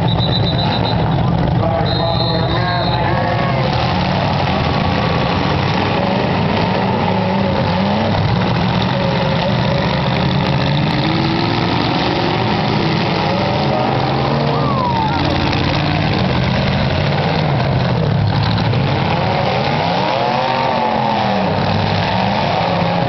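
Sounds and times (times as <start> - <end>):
car engines revving: 0.0 - 23.0.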